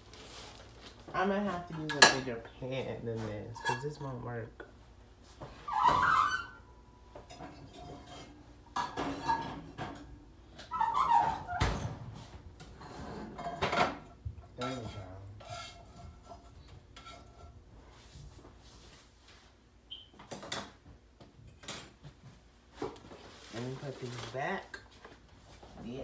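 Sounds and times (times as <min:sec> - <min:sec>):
pots and pans clattering: 0:05.7 - 0:17.6.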